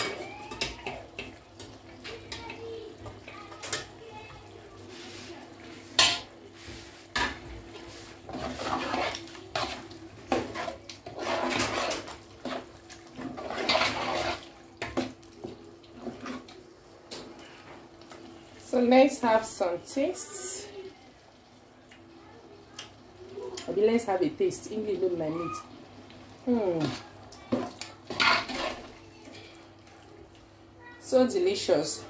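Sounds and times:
spoon stirring stew in pot: 5.8 - 18.2, 26.8 - 30.5.

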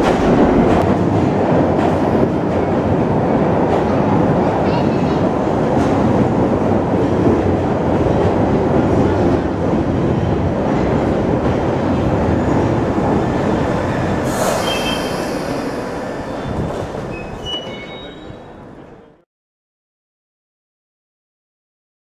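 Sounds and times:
train rumbling past platform: 0.0 - 19.2
brief high squeals: 14.3 - 18.5.

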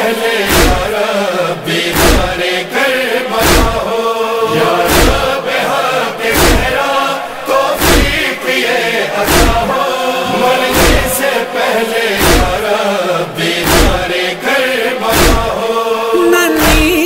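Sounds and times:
choir chanting a lament: 0.0 - 17.0
heavy rhythmic thump: 0.4 - 1.0, 1.8 - 2.6, 3.4 - 6.8, 7.6 - 8.4, 9.1 - 11.2, 12.2 - 12.7, 13.4 - 14.3, 15.0 - 15.7.

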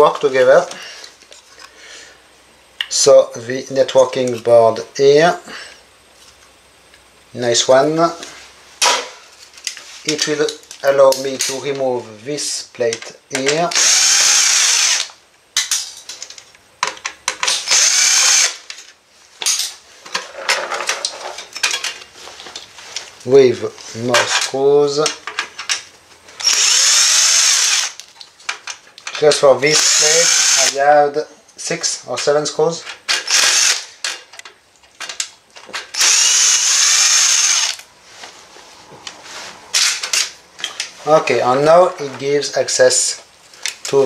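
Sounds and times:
cordless drill running: 13.8 - 15.1, 17.7 - 18.6, 26.4 - 28.0, 29.7 - 30.8, 33.3 - 33.9, 36.0 - 37.8.

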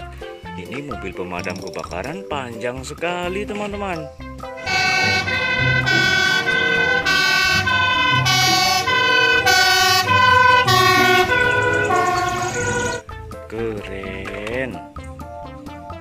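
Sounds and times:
two-tone fire engine siren: 4.6 - 13.0.

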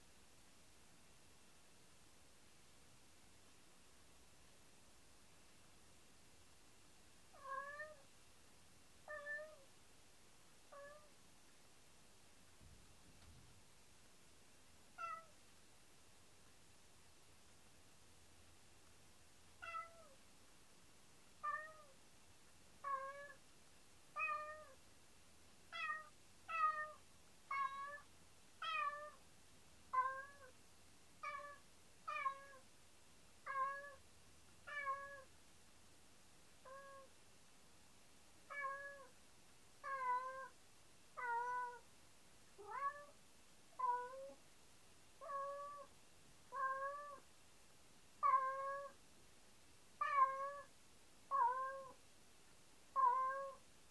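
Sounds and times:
cat meowing: 7.4 - 8.0, 9.1 - 9.6, 10.7 - 11.1, 15.0 - 15.3, 19.6 - 20.2, 21.4 - 22.0, 22.8 - 23.4, 24.2 - 24.8, 25.7 - 29.2, 29.9 - 30.5, 31.2 - 32.6, 33.5 - 34.0, 34.7 - 35.3, 36.6 - 37.1, 38.5 - 39.1, 39.8 - 40.5, 41.2 - 41.8, 42.6 - 43.2, 43.8 - 44.4, 45.2 - 45.9, 46.5 - 47.2, 48.2 - 49.0, 50.0 - 50.7, 51.3 - 52.0, 53.0 - 53.6.

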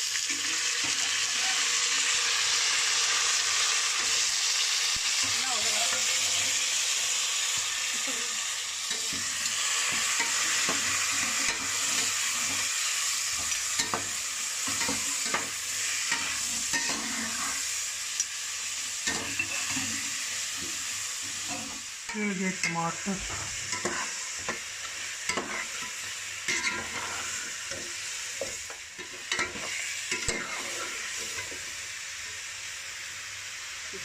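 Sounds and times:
food sizzling in a pot: 0.0 - 34.0
metal spoon scraping a pot: 23.7 - 24.5, 25.3 - 27.8, 29.0 - 31.5.

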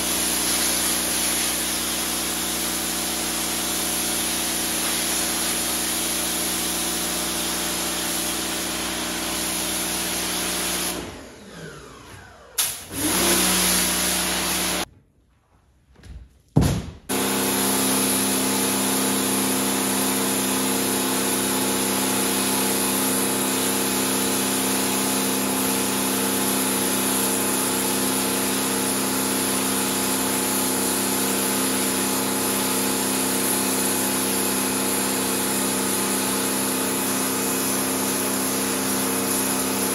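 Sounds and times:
water jet hissing: 0.0 - 2.9
pressure washer pump motor humming: 0.0 - 14.9, 17.1 - 39.9.

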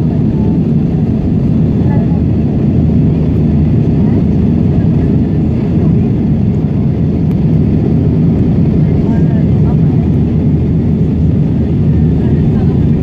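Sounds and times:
airplane cabin roar: 0.0 - 13.0.

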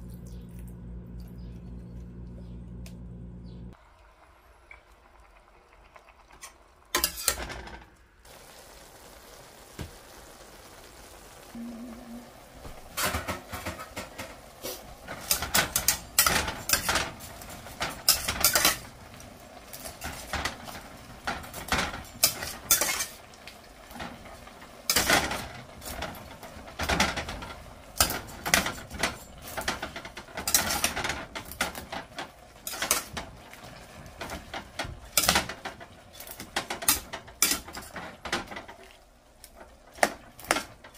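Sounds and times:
utensils scraping a metal pan: 7.0 - 7.5, 13.0 - 18.9, 21.3 - 23.2, 26.8 - 33.2, 35.2 - 38.6.

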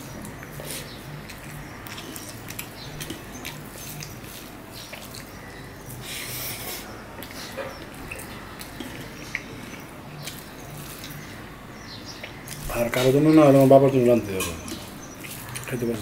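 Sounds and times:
wet chewing: 0.0 - 16.0
lip and tongue clicks: 0.1 - 11.4.

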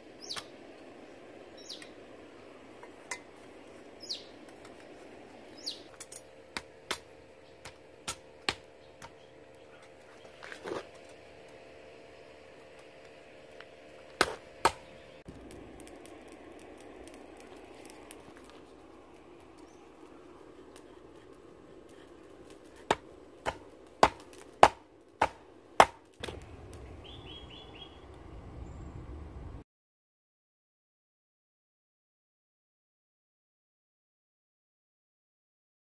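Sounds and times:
hammer striking hot steel on anvil: 5.9 - 9.3, 14.2 - 14.9, 22.8 - 26.4.

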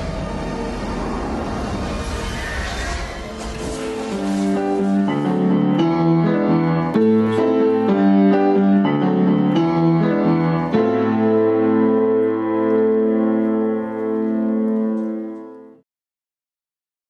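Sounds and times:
piano music: 3.3 - 15.8.

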